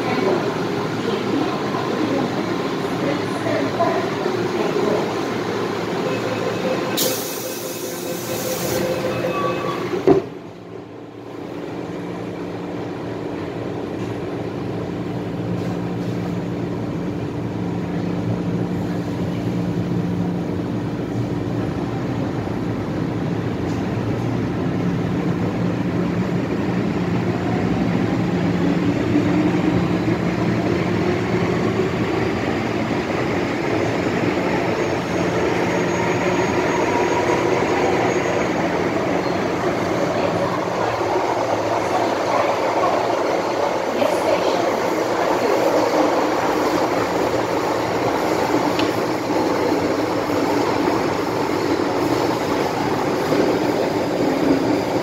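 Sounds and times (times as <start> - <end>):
train doors shutting with a thud: 6.8 - 10.5.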